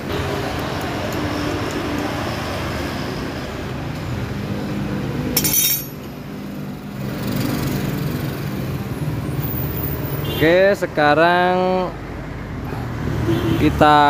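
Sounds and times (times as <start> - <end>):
metal hand tools clinking: 5.4 - 6.1.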